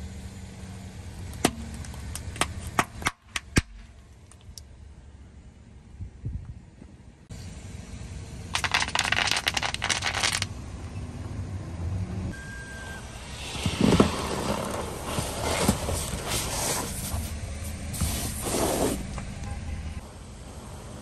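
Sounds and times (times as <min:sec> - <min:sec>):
car engine low rumble: 0:00.0 - 0:21.0
bubble wrap popping: 0:08.6 - 0:10.5
tyre crushing plastic toy: 0:08.6 - 0:10.5.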